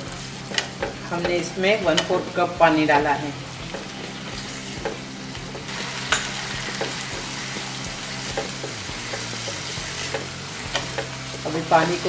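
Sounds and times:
vegetables sizzling in a pan: 0:00.0 - 0:12.0
spatula knocking against pan: 0:08.3 - 0:11.5.

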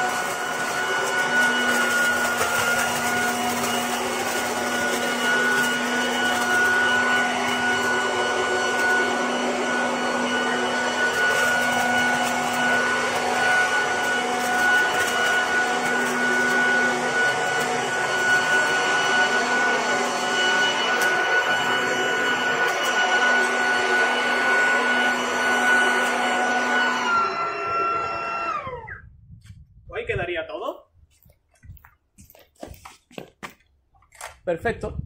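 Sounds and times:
leaf vacuum fan whining: 0:00.0 - 0:29.2
leaves ticking being shredded: 0:00.1 - 0:08.1.

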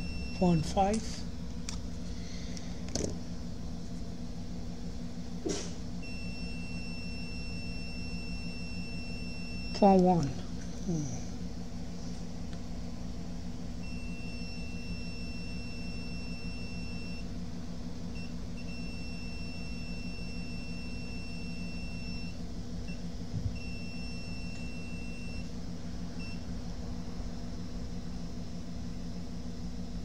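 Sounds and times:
multimeter buzzer beeping: 0:00.0 - 0:01.0, 0:06.0 - 0:10.0, 0:13.8 - 0:17.2, 0:18.2 - 0:23.0, 0:23.6 - 0:25.5
steady low hum: 0:00.0 - 0:30.0.

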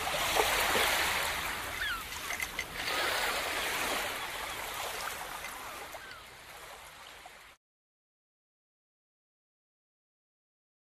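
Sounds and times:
waves lapping on beach: 0:00.0 - 0:07.6.

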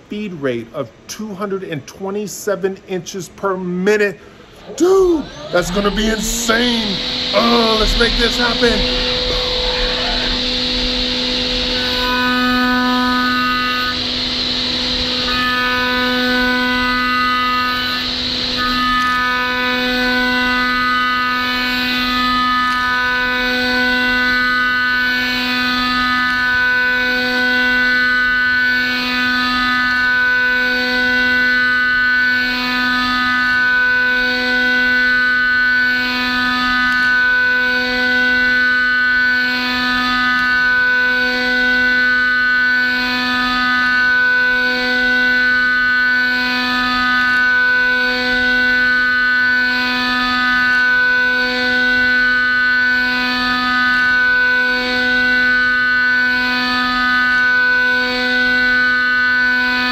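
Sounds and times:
milling spindle high-pitched whine: 0:00.0 - 0:59.9.

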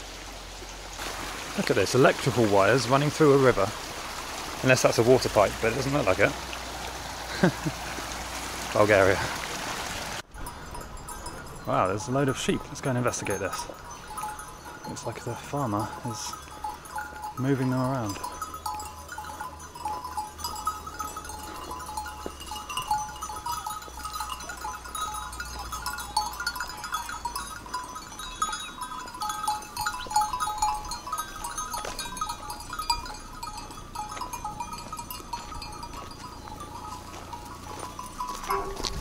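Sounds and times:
small bells jangling: 0:10.3 - 0:39.0.

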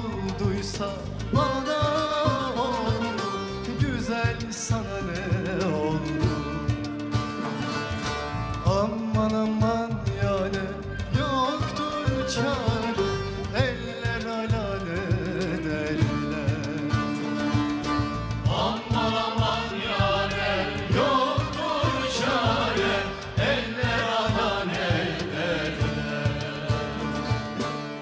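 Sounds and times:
lead singer singing: 0:00.0 - 0:07.5, 0:08.6 - 0:27.8
hand drum: 0:00.0 - 0:28.0
long-necked lutes playing: 0:05.0 - 0:09.8, 0:10.4 - 0:28.0
backing choir singing: 0:18.2 - 0:28.0.

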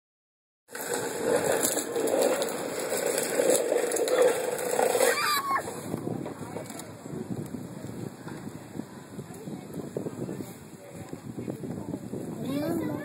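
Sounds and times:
child's voice sliding downward: 0:05.0 - 0:05.8, 0:12.4 - 0:13.0.

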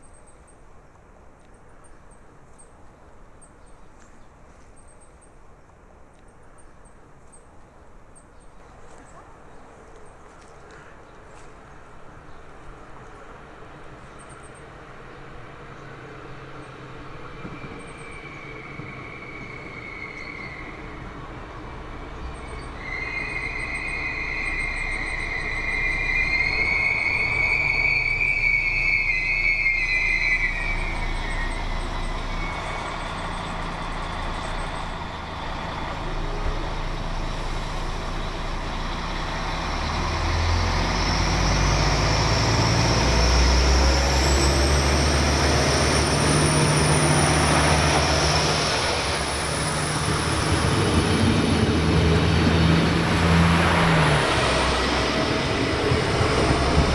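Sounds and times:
diesel train engine passing: 0:11.6 - 0:56.9
train brake squeal: 0:17.4 - 0:21.0, 0:22.4 - 0:39.0
high whine: 0:22.4 - 0:56.9.

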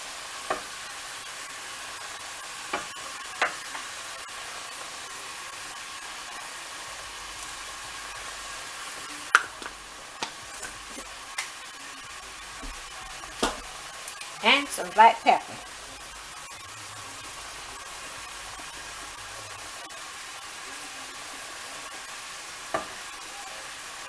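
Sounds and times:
meat sizzling in a skillet: 0:00.0 - 0:24.0.

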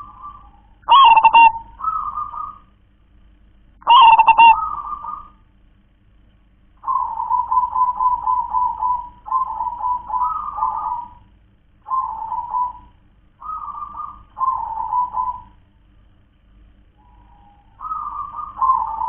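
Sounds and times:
dove cooing: 0:00.0 - 0:02.8, 0:03.8 - 0:05.4, 0:06.8 - 0:15.7, 0:17.0 - 0:19.0.

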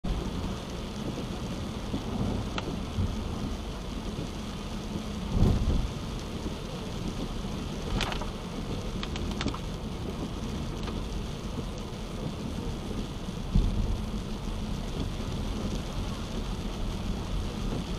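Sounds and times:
rain on a car: 0:00.0 - 0:17.9
tyres on wet pavement: 0:00.1 - 0:17.9
sharp ticks: 0:09.0 - 0:09.6.

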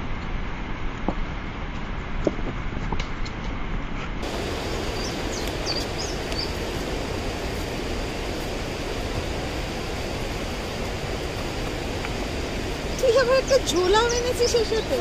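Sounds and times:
outdoor rushing noise: 0:00.0 - 0:15.0
high bird chirps: 0:04.7 - 0:06.6.

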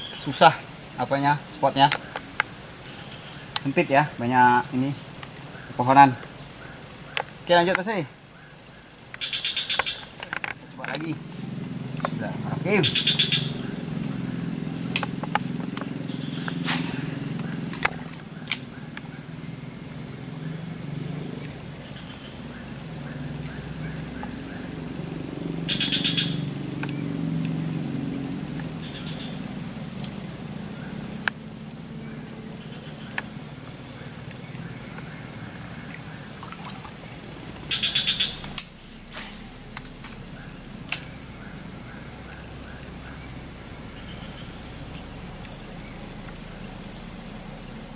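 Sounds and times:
short trilling calls: 0:00.0 - 0:19.6, 0:25.7 - 0:27.1, 0:32.0 - 0:45.0
insects droning: 0:00.0 - 0:47.9
low steady rumble: 0:10.6 - 0:47.9
sharp clicks: 0:40.9 - 0:41.1.

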